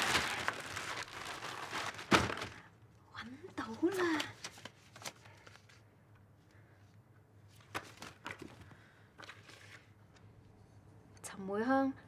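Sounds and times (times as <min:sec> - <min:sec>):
paper rustling: 0:00.0 - 0:02.6, 0:03.8 - 0:05.8, 0:07.5 - 0:09.9
crisp paper crackles: 0:00.0 - 0:02.7, 0:03.6 - 0:05.8.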